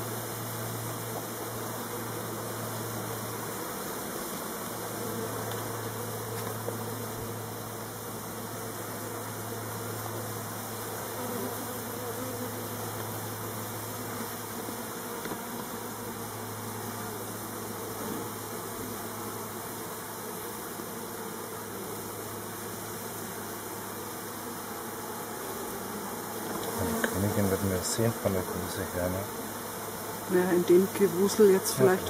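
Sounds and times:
bees buzzing: 0.0s - 32.0s.

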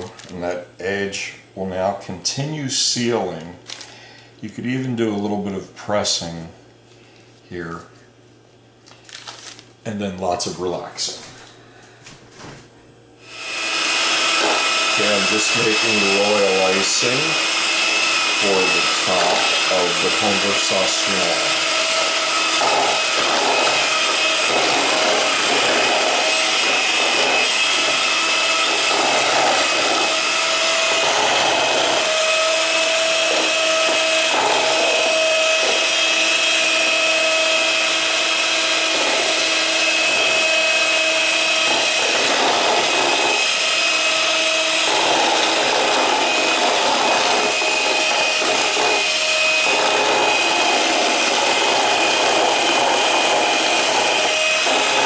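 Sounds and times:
electric hand mixer whirring: 0.0s - 0.4s, 13.2s - 55.0s.

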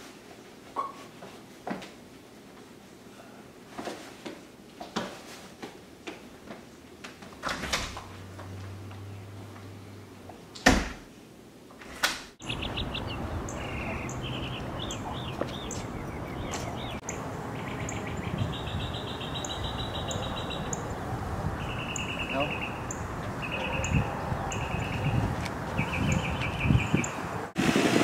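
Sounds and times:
outdoor background noise: 0.0s - 28.0s
small birds trilling: 12.4s - 27.2s
footsteps: 15.2s - 16.9s.

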